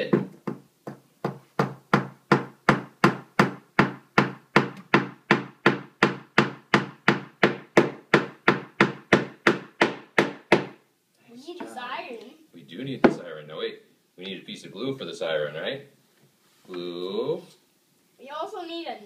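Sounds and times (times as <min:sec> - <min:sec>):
hammer hitting nail into wood: 0:00.1 - 0:10.8.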